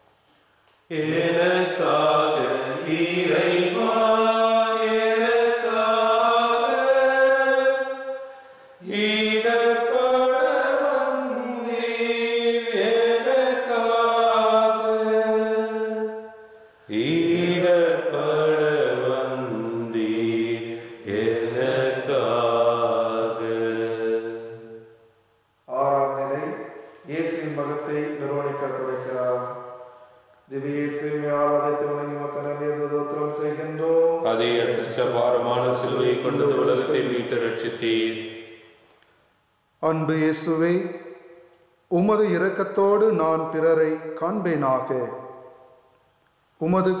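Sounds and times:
person singing devotional chant: 0:00.9 - 0:08.0, 0:08.8 - 0:24.8, 0:25.7 - 0:29.6, 0:30.5 - 0:38.3.

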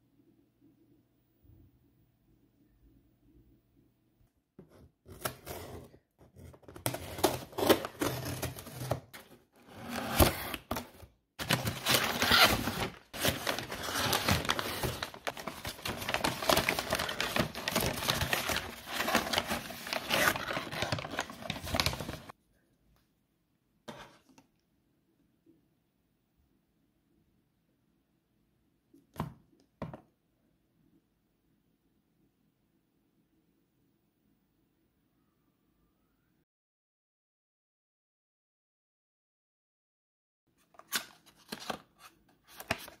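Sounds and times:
crinkling and clicking handling noise: 0:10.5 - 0:22.3.

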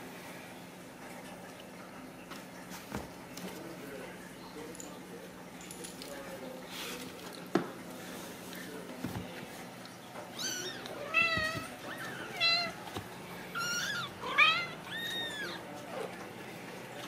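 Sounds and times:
kittens mewing: 0:10.3 - 0:16.2.

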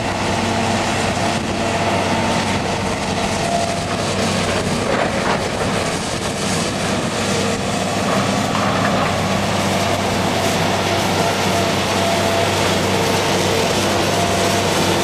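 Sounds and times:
engine running steadily: 0:00.0 - 0:15.0.

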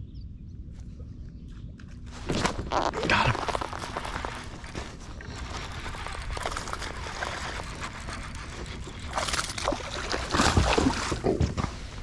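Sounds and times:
water splashing: 0:05.4 - 0:11.5.

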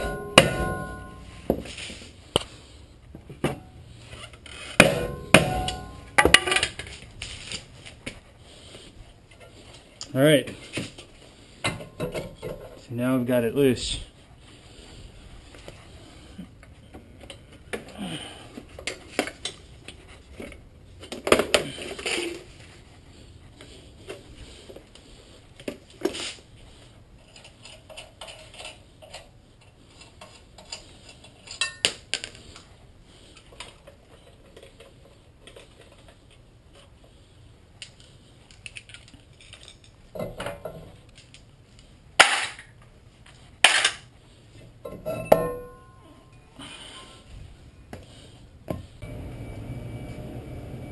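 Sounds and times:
metal tools and parts clanking: 0:00.0 - 0:01.5, 0:03.6 - 0:07.0, 0:30.6 - 0:32.0, 0:38.6 - 0:41.0, 0:44.8 - 0:46.4.

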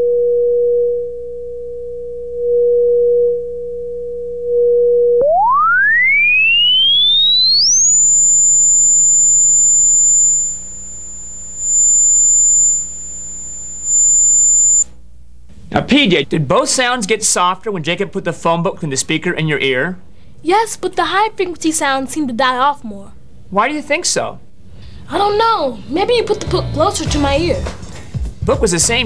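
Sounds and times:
rising tone sweep: 0:05.2 - 0:14.9
pure test tone: 0:05.2 - 0:15.0.

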